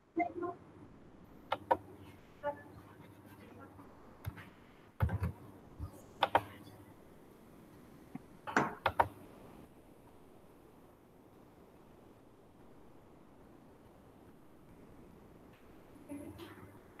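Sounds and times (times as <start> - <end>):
keyboard and mouse clicks: 1.5 - 1.9, 5.0 - 6.6, 8.1 - 9.2.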